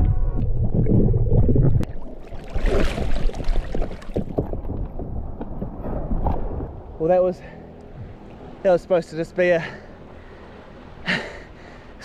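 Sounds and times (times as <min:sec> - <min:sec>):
water sloshing and splashing: 0:00.3 - 0:07.0.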